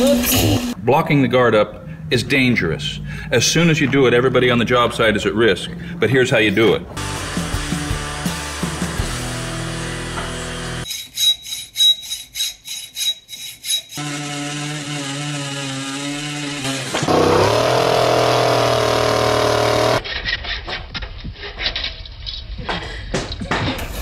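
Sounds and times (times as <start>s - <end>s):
rhythmic sawing strokes: 7.2s - 20.1s
hacksaw cutting metal tube: 10.8s - 20.0s
chainsaw revving: 16.6s - 20.0s.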